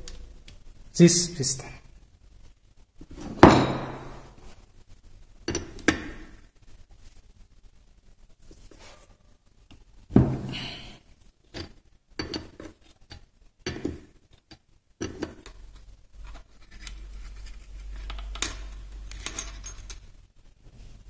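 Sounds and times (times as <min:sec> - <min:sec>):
steel parts clinking on metal: 0:18.1 - 0:20.1.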